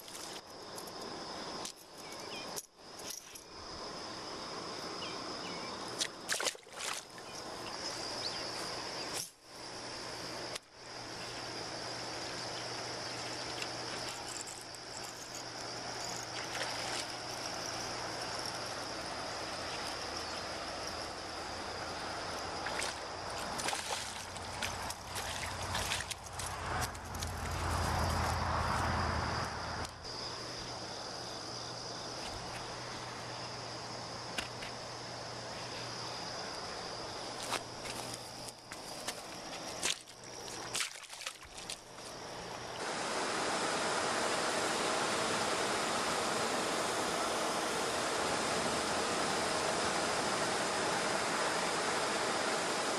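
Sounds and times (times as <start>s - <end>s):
crickets chirping: 0.0s - 52.9s
fish splashing at surface: 22.6s - 27.6s, 39.8s - 41.8s.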